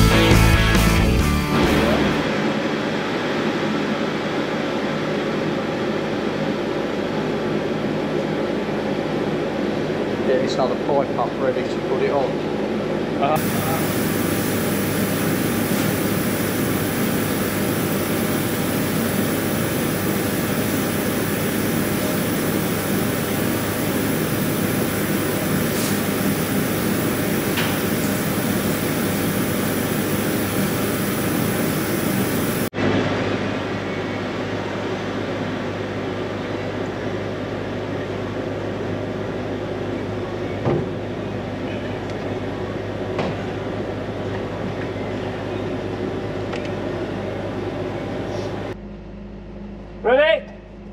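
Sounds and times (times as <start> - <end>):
machinery roaring: 0.0 - 3.1, 13.2 - 33.8.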